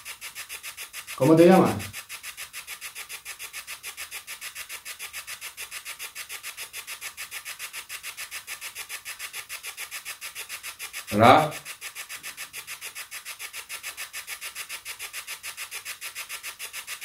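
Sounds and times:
chopping radio static hiss: 0:01.2 - 0:01.9, 0:11.1 - 0:11.6.

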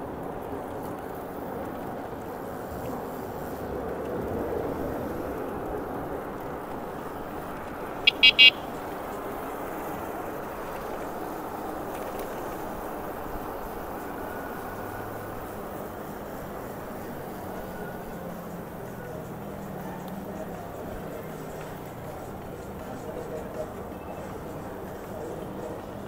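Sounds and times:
wind and road noise: 0:00.0 - 0:26.0
electronic horn beeps: 0:08.0 - 0:08.7.

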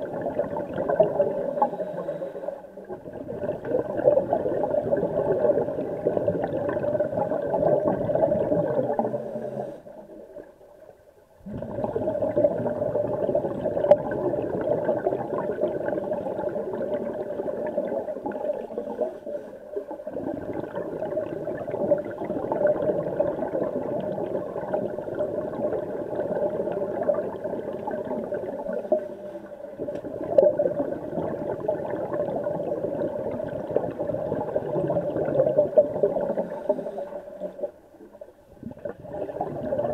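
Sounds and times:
muffled underwater rushing: 0:11.4 - 0:39.9.

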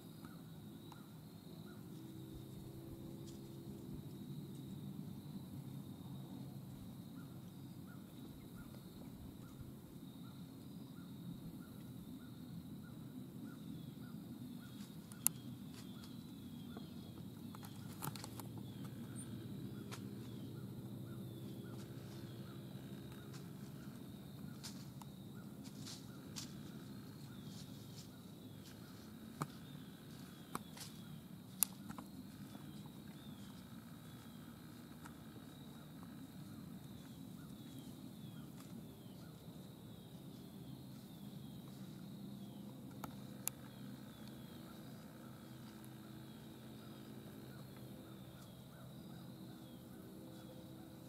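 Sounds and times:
insects chirping: 0:00.0 - 0:51.0.

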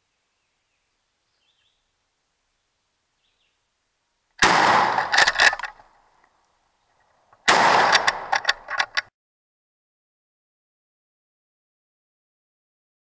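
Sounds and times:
shotgun blasts with echoes: 0:04.4 - 0:05.5, 0:07.4 - 0:08.5.

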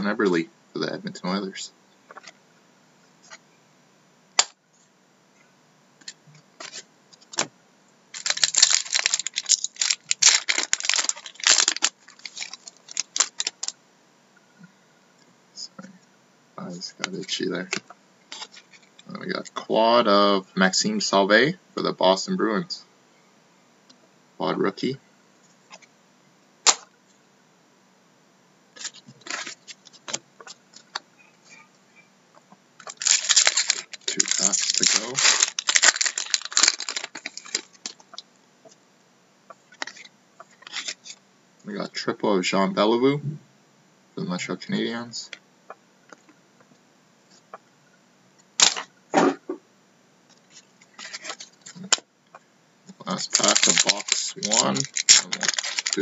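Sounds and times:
foil wrapper tearing and crinkling: 0:08.1 - 0:13.7, 0:28.8 - 0:30.2, 0:32.9 - 0:38.0, 0:53.1 - 0:56.0
cards clicking and rustling: 0:08.2 - 0:13.7, 0:28.8 - 0:30.9, 0:32.9 - 0:38.0, 0:53.2 - 0:56.0.

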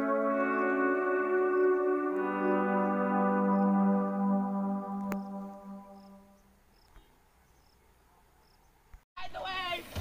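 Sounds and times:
music with long held notes: 0:00.0 - 0:06.3.

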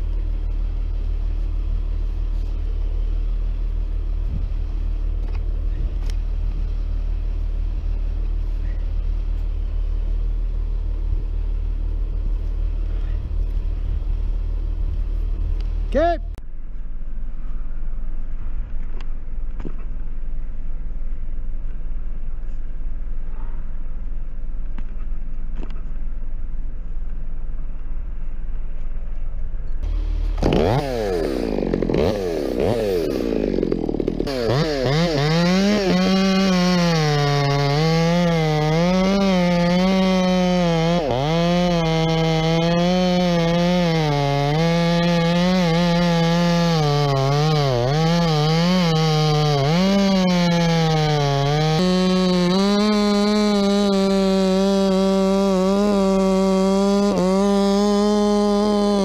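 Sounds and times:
low engine drone: 0:00.0 - 0:57.5
chainsaw cutting wood: 0:29.8 - 0:59.0.

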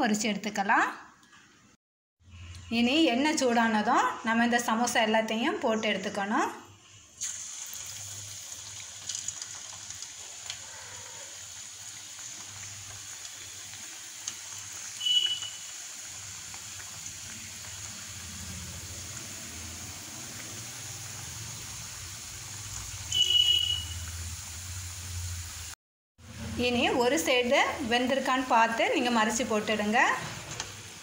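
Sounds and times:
food deep-frying in oil: 0:07.1 - 0:31.0.

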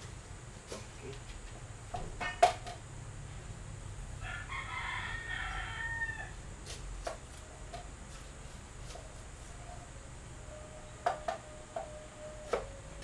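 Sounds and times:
rooster crowing: 0:04.2 - 0:06.4.

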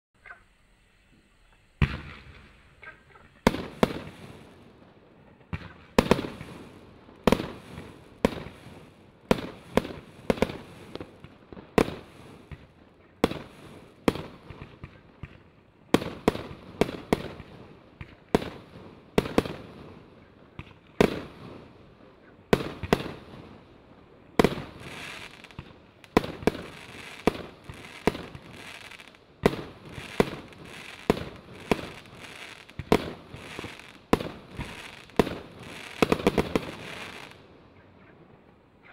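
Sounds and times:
fireworks battery bangs: 0:01.1 - 0:04.4.

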